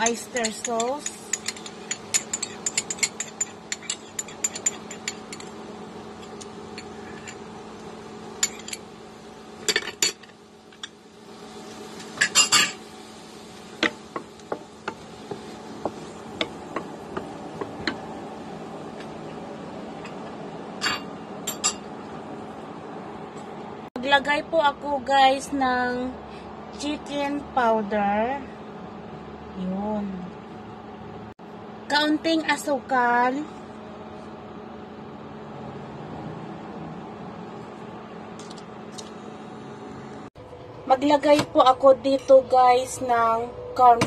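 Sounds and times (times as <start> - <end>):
wooden spatula tapping a wok: 13.8 - 18.0
low hum: 33.2 - 44.0.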